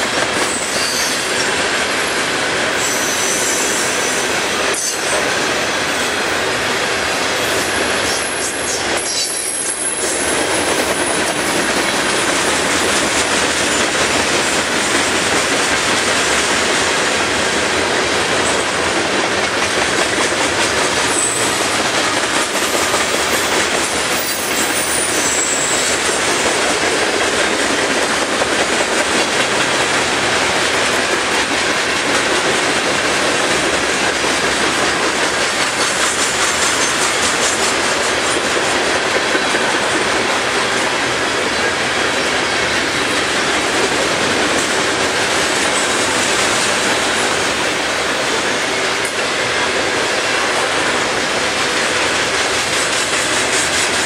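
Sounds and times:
train wheels clicking on rail joints: 0.0 - 54.0
high wheel squeals: 0.5 - 1.4, 8.1 - 10.2, 24.1 - 25.9.

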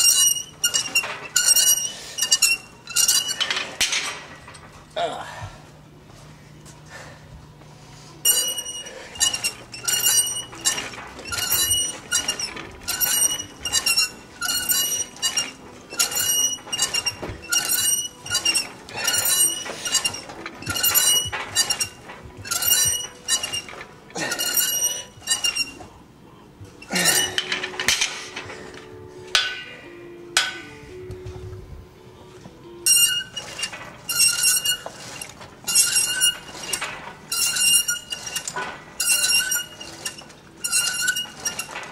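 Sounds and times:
weight stack plates clinking: 8.3 - 25.9, 26.8 - 30.8.

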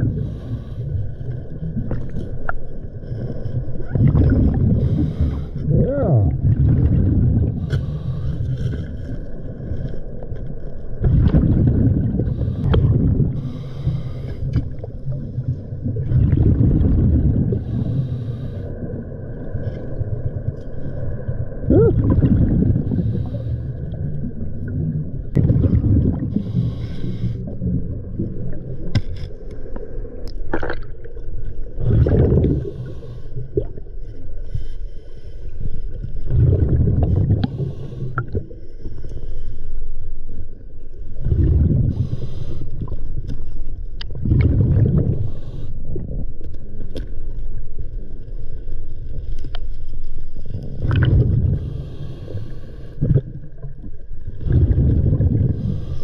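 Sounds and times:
air bubbles gurgling underwater: 3.6 - 8.1, 10.8 - 18.2, 21.2 - 33.9, 36.2 - 38.6, 41.2 - 42.2, 43.9 - 46.4, 50.5 - 51.8, 53.0 - 56.0.

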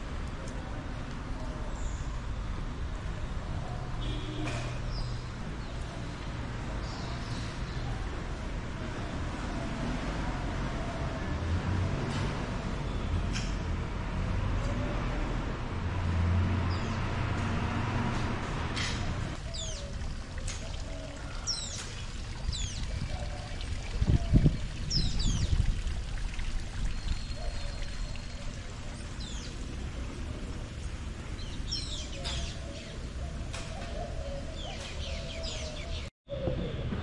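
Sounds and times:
birds calling: 18.8 - 25.6, 30.8 - 36.8.

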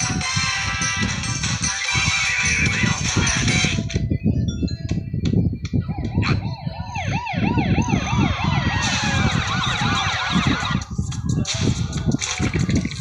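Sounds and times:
cartoon police sirens: 5.9 - 10.8.

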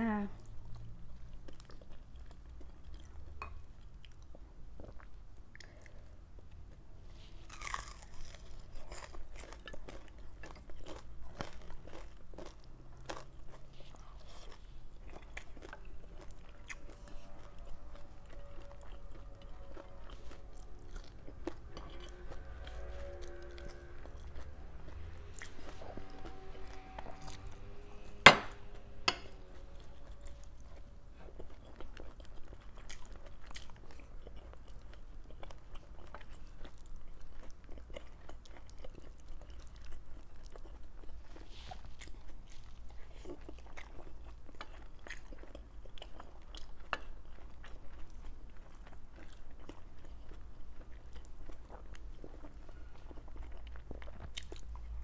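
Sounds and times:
person chewing food: 0.4 - 55.0
sharp knock: 28.3 - 28.6.

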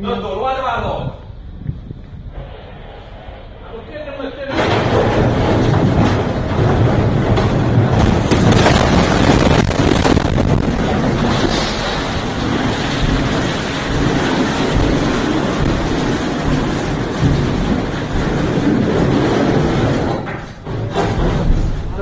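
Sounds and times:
wind rushing: 0.6 - 5.6, 7.3 - 19.5
sharp knocks: 4.5 - 22.0
sea rushing: 8.6 - 18.4.

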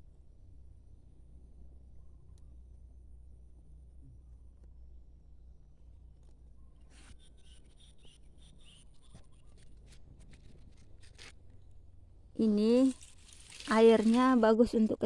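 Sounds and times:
low steady rumble: 0.0 - 15.0.

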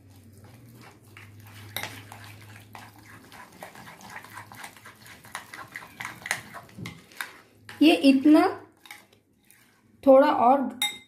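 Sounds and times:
spoon stirring thick batter: 0.0 - 11.0
spoon clinking against glass bowl: 10.8 - 11.0.

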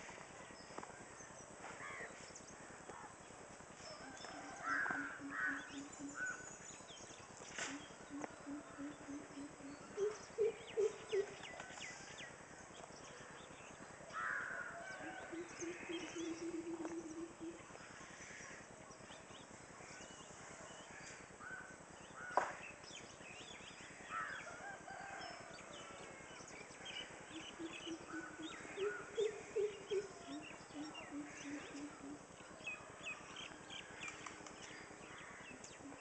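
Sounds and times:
birds calling: 1.7 - 12.1, 12.8 - 18.7, 26.2 - 36.0.

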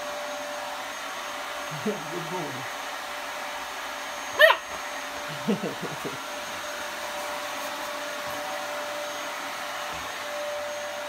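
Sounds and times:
vacuum cleaner running: 0.0 - 11.0
puppy barking: 4.3 - 4.8.

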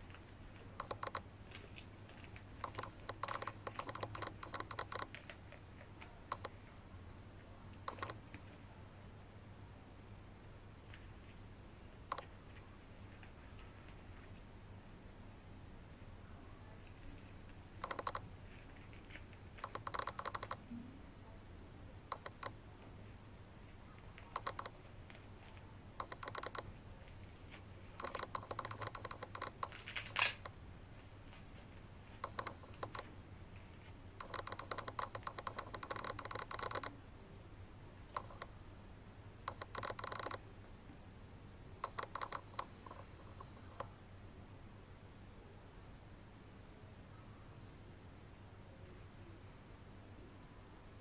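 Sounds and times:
plastic film crinkling clicks: 0.1 - 6.5, 24.0 - 36.0.

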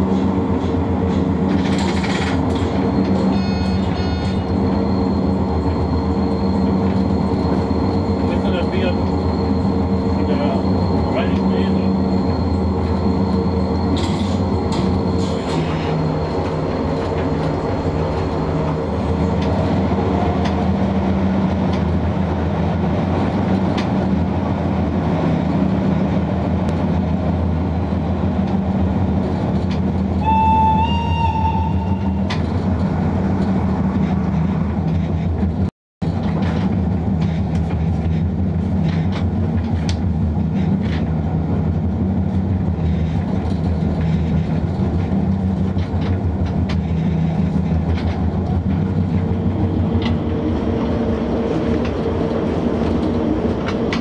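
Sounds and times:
locomotive running hum: 0.0 - 54.0
rail noise: 0.0 - 54.0
train horn: 3.3 - 4.5, 30.2 - 32.4
wheel clicks over rail joints: 32.2 - 41.2.

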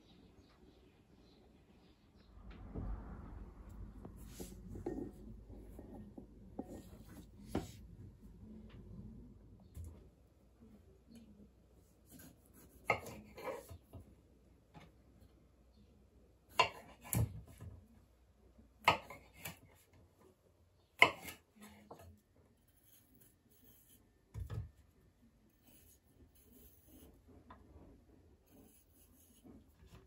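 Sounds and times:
knife cutting leaves on wooden board: 12.1 - 13.7.

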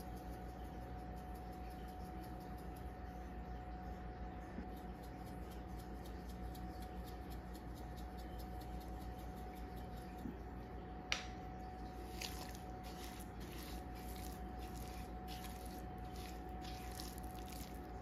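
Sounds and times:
faint steady hum: 0.0 - 18.0
spatula squishing and scraping in bowl: 11.9 - 18.0.

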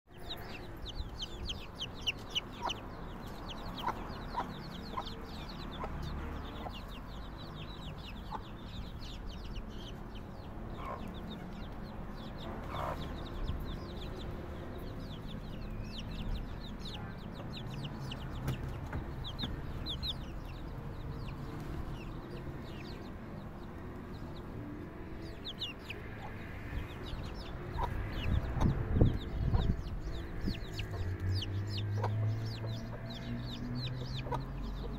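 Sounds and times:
chicks peeping: 0.1 - 34.9
hen clucking: 0.2 - 7.1, 12.4 - 13.3, 25.3 - 33.2, 33.8 - 34.9.

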